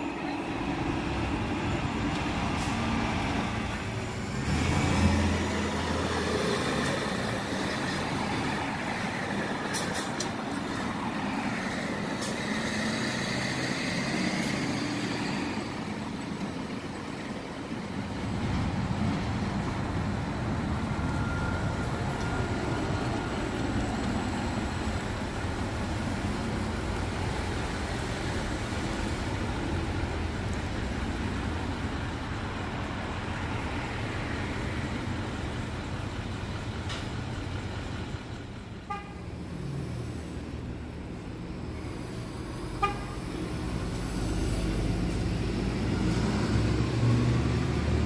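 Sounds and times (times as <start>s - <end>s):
heavy traffic engine rumble: 0.0s - 48.0s
vehicle horn toot: 38.9s - 39.2s, 42.8s - 43.2s.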